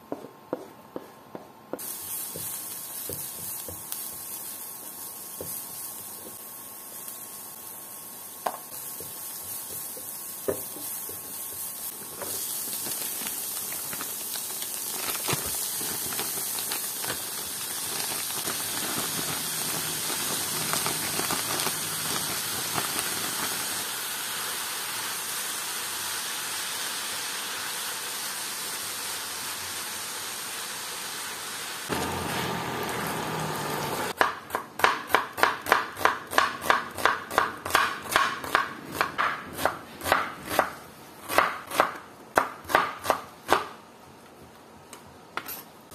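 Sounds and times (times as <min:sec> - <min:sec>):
food sizzling in a pan: 0:01.8 - 0:34.2
knife chopping on cutting board: 0:34.2 - 0:40.7.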